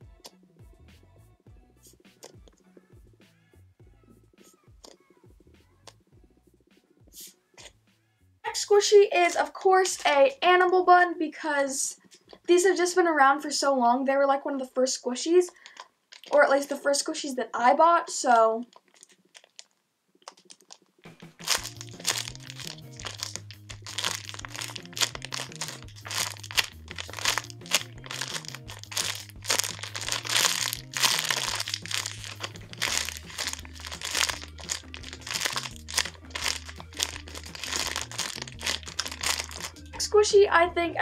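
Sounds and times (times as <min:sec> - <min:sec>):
background music with bass line: 0:00.0 - 0:08.3, 0:21.0 - 0:41.0
plastic bag crinkling: 0:15.5 - 0:16.4, 0:18.6 - 0:39.9.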